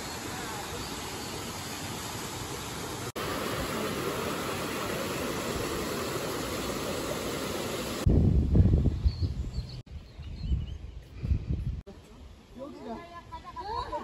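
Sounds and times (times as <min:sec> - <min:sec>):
waterfall rushing: 0:00.0 - 0:08.1
water splashing over rocks: 0:01.5 - 0:08.0.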